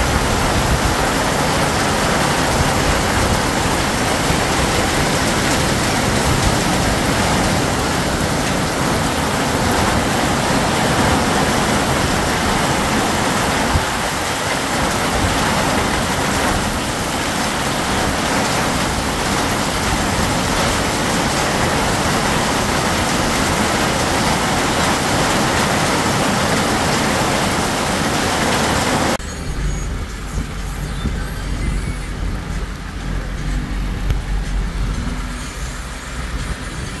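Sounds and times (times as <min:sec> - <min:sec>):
heavy rain pouring: 0:00.0 - 0:37.0
low rumble inside moving car: 0:29.1 - 0:37.0.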